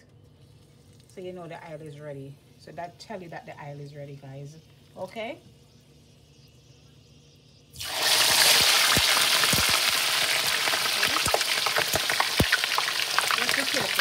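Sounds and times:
fish frying in hot oil: 0:07.7 - 0:14.0
oil popping and crackling: 0:07.8 - 0:14.0.

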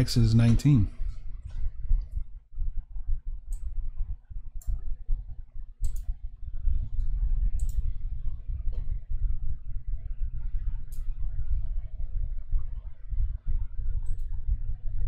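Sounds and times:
low steady rumble: 0:00.0 - 0:15.0
computer mouse clicks: 0:05.8 - 0:06.1, 0:07.0 - 0:07.9, 0:14.0 - 0:14.4.

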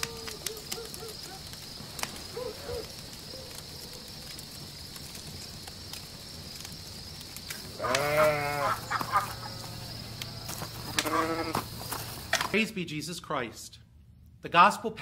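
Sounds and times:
sheep bleating: 0:07.8 - 0:09.9, 0:10.9 - 0:11.7.

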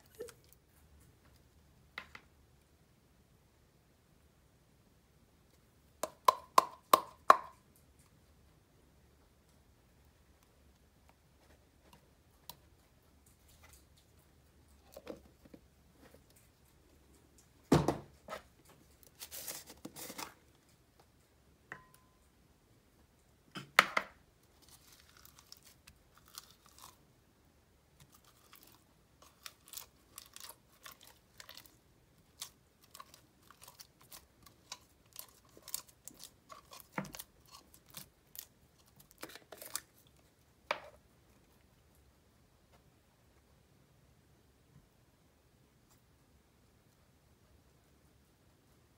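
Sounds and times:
slime squelching and crackling: 0:28.0 - 0:40.1.

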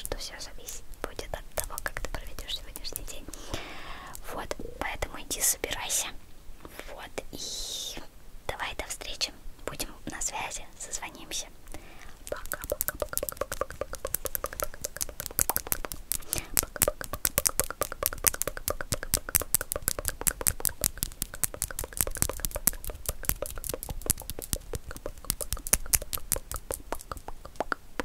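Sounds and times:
fingernails clicking and tapping: 0:12.3 - 0:27.8.

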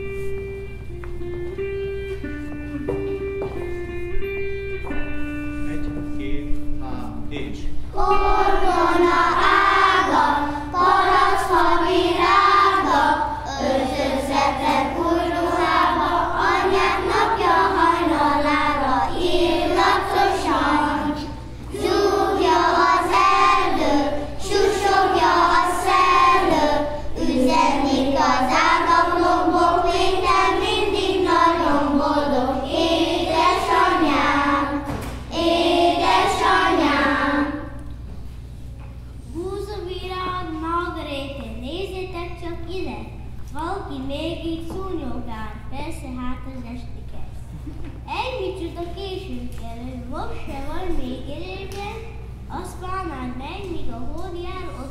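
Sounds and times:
young children singing: 0:07.9 - 0:38.0.

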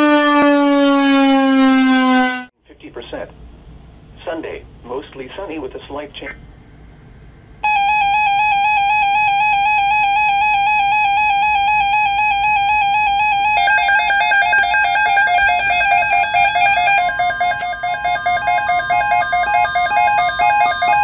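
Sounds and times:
pulsing buzzy alarm tone: 0:00.0 - 0:02.5, 0:07.6 - 0:21.0
second lower alarm tone: 0:00.0 - 0:02.5, 0:07.6 - 0:21.0.

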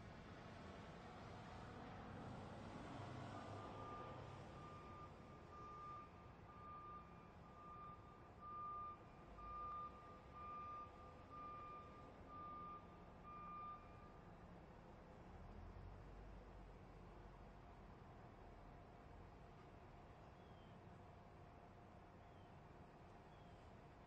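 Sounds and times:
faint reversing alarm beeping: 0:03.6 - 0:14.3.

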